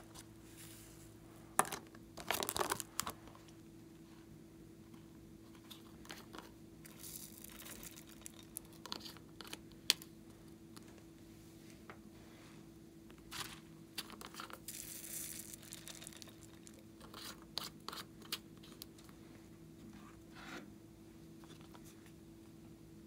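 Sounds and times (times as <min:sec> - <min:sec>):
faint hum: 0:00.0 - 0:23.0
plastic squeeze bottle crinkling: 0:06.1 - 0:10.1, 0:13.3 - 0:18.9.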